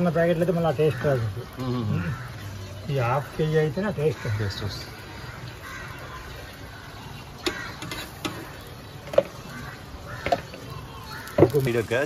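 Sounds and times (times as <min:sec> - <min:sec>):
cooking utensils tapping griddle: 0:07.4 - 0:11.9.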